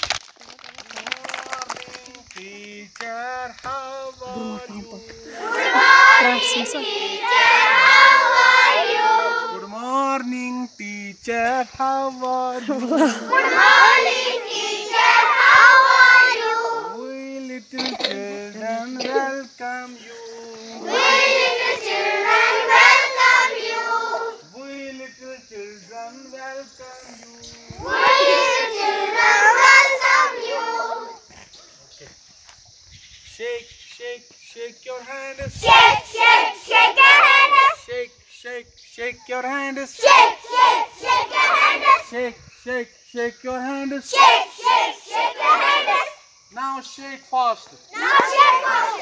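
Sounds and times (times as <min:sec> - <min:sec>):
children singing together: 0:04.2 - 0:09.7, 0:13.0 - 0:17.1, 0:20.0 - 0:24.5, 0:27.5 - 0:31.2, 0:35.6 - 0:37.8, 0:40.0 - 0:42.2, 0:44.0 - 0:46.2, 0:48.0 - 0:49.0.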